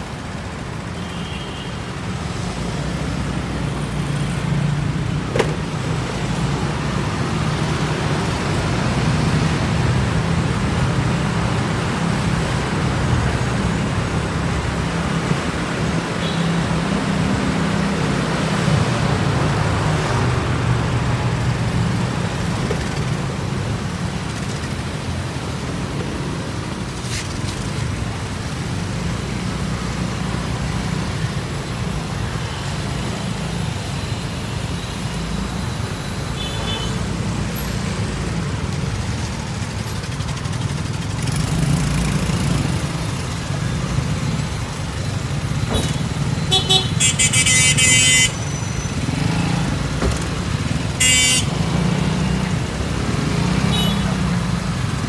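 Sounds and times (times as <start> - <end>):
motorcycle and car engines rumbling: 1.8 - 55.0
vehicle horn honking: 46.5 - 48.6, 51.0 - 51.6.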